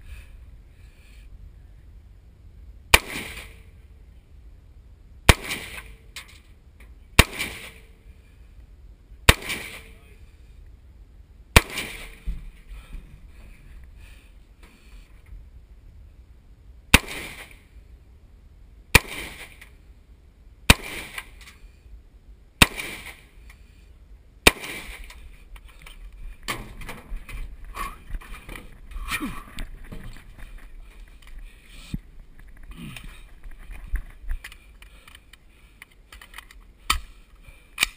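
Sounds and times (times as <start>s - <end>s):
rifle shots with echo: 2.9s - 3.6s, 5.3s - 6.0s, 7.2s - 7.9s, 9.3s - 10.0s, 11.6s - 12.3s, 16.9s - 17.6s, 18.9s - 19.6s, 20.7s - 21.4s, 22.6s - 23.2s, 24.4s - 25.1s.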